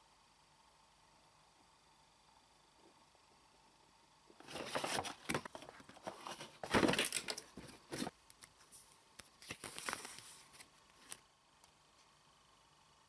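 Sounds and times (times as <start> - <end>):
paper leaflet rustling: 4.4 - 8.1, 9.4 - 10.7
plastic packaging crinkling: 4.4 - 8.1.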